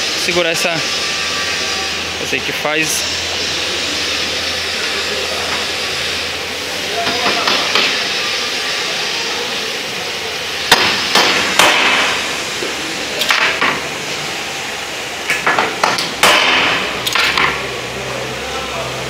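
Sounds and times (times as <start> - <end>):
hammer striking steel: 10.7 - 12.4, 15.3 - 17.6.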